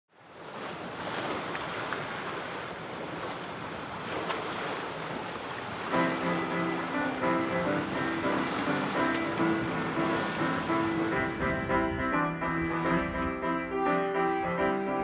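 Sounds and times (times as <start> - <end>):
water rushing along boat hull: 0.1 - 15.0
music: 5.9 - 15.0
wind on microphone: 7.6 - 13.4.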